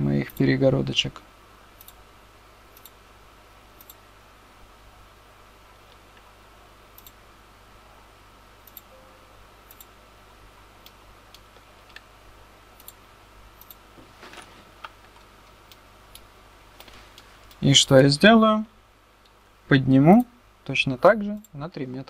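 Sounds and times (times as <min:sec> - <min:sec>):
faint steady hum: 0:00.0 - 0:22.0
computer mouse clicking: 0:01.8 - 0:02.0, 0:02.8 - 0:03.0, 0:03.8 - 0:04.0, 0:06.9 - 0:07.2, 0:08.6 - 0:08.9, 0:09.7 - 0:09.9, 0:10.8 - 0:12.1, 0:12.8 - 0:13.0, 0:13.6 - 0:13.8.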